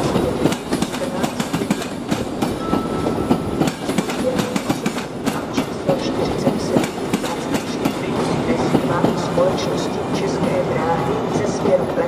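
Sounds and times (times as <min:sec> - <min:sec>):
train wheels clattering over rail joints: 0:00.0 - 0:02.6, 0:03.3 - 0:09.4
train rumble: 0:00.0 - 0:12.0.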